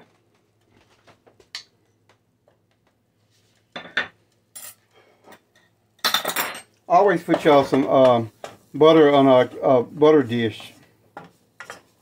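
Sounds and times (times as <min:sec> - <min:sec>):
utensils tapping on cookware: 0:11.2 - 0:12.0.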